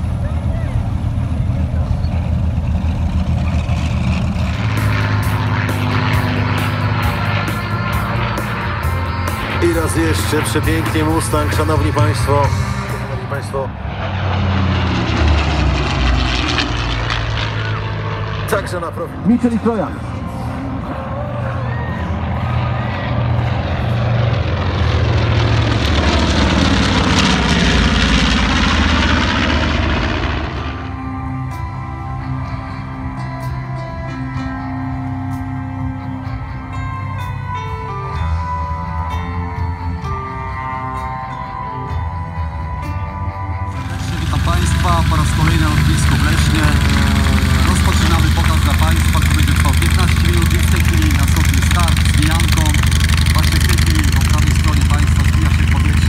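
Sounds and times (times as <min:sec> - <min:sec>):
piston aircraft engines running: 0:00.0 - 0:56.0
propeller plane droning overhead: 0:00.0 - 0:56.0.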